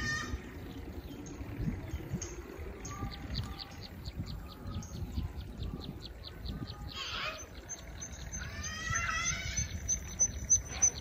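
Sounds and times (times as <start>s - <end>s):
birds chirping: 0.0s - 11.0s
steady low rumble: 0.0s - 11.0s
bird call: 2.2s - 11.0s.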